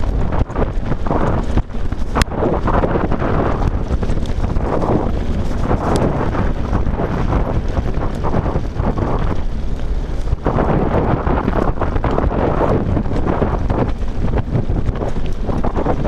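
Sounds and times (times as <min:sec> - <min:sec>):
bike clicks and rattles: 0:00.0 - 0:16.0
tyres rumbling on gravel: 0:00.0 - 0:16.0
wind buffeting microphone: 0:00.0 - 0:16.0.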